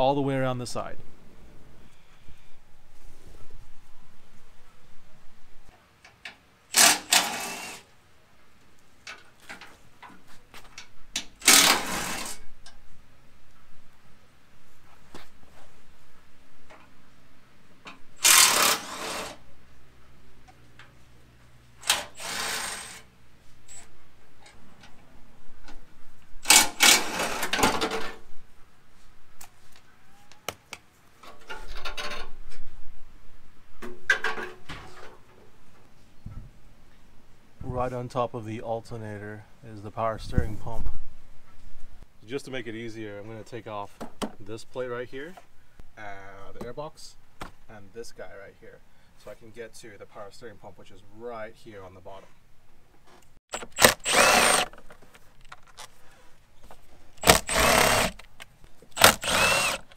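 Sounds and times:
cordless power tool spinning: 6.8 - 7.8, 11.4 - 12.4, 18.2 - 19.4, 21.8 - 23.0, 26.5 - 27.6, 53.5 - 54.8, 57.2 - 58.2, 59.0 - 59.9.

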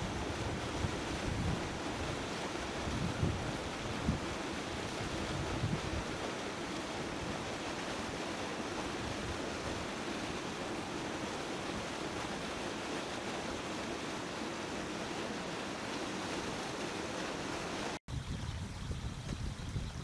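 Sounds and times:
wind blowing across microphone: 0.0 - 10.4, 18.1 - 20.0.

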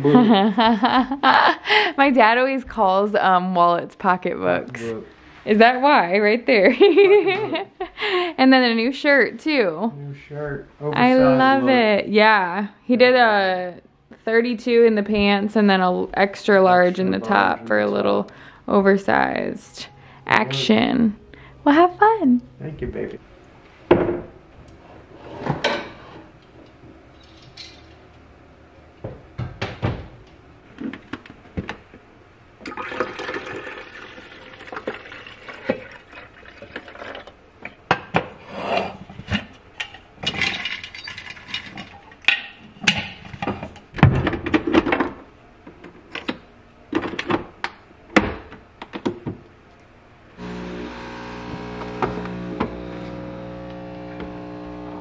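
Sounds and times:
steady noise: 50.1 - 55.0
machine hum: 50.2 - 55.0.

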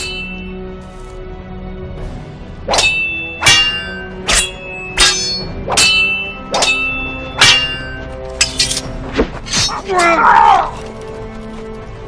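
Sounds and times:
swords clashing: 2.7 - 10.3.

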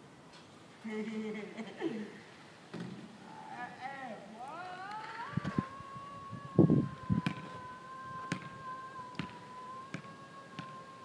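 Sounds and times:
ball bouncing on asphalt: 7.2 - 7.5, 8.2 - 10.8.

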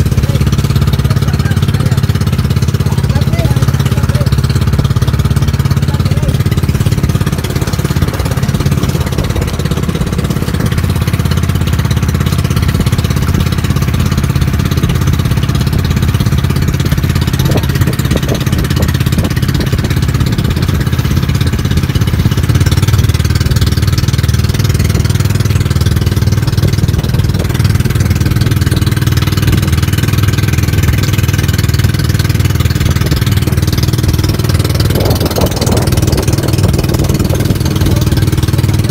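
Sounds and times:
boat engine humming: 0.0 - 38.9.

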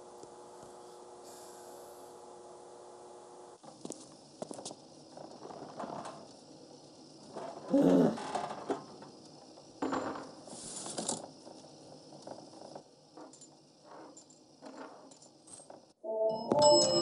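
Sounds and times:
coins clattering into tray: 13.2 - 15.8.

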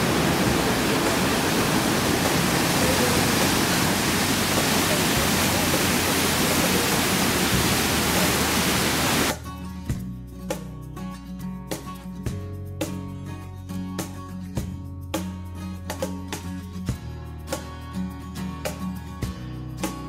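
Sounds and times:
waterfall roaring: 0.0 - 9.3
acoustic guitar music: 9.3 - 20.0.

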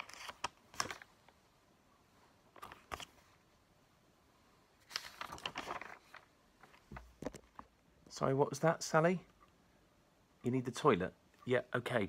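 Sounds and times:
paper pages rustling: 0.0 - 1.2, 2.5 - 3.4, 4.8 - 7.7.

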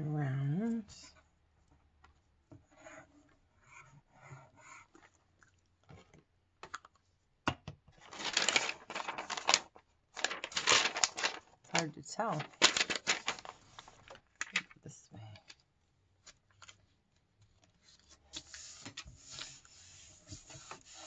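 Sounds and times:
stiff paper crinkling: 8.0 - 14.8.

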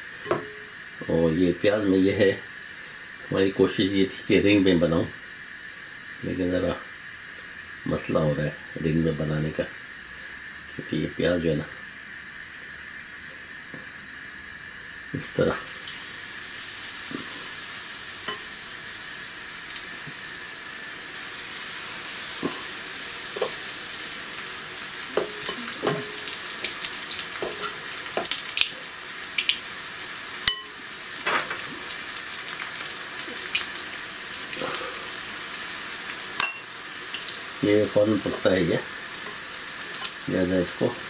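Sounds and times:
deep-frying sizzle: 0.0 - 41.0.

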